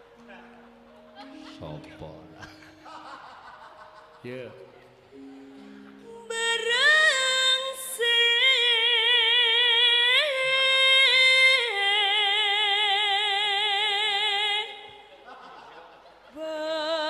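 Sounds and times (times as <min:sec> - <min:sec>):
woman singing with vibrato: 0:05.2 - 0:15.1, 0:16.3 - 0:17.0.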